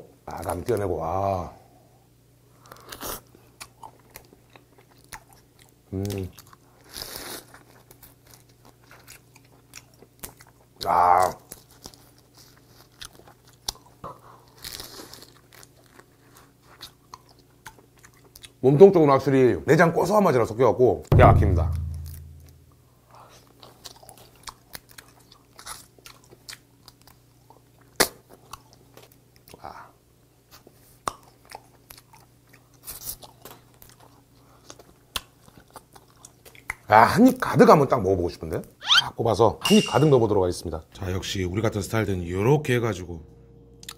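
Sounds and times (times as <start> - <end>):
crab shell crunching and chewing: 2.6 - 18.6, 23.3 - 29.6, 30.5 - 36.9.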